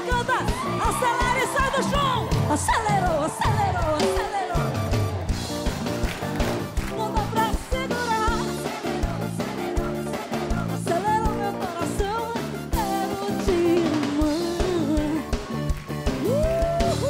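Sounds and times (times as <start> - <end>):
woman singing: 0.0 - 4.8, 6.8 - 15.5
drum kit beat: 0.0 - 17.0
electric guitars: 0.0 - 17.0.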